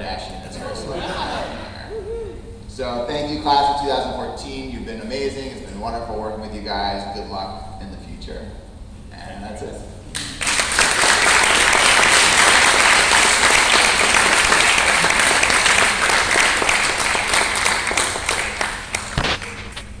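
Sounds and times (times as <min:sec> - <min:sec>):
audience applauding: 0:10.1 - 0:19.8.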